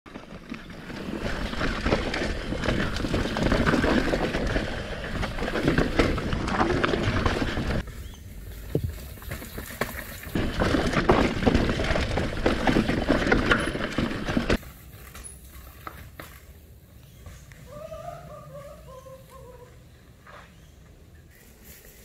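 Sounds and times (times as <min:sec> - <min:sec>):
bike rattling and clattering: 0:00.1 - 0:07.9, 0:08.5 - 0:16.5
tyres crunching over stones: 0:00.1 - 0:07.9, 0:08.6 - 0:16.7.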